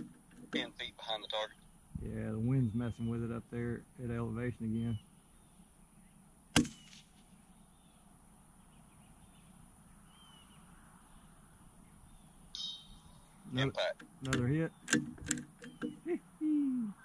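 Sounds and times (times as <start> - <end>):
rifle shot crack: 6.5 - 7.2.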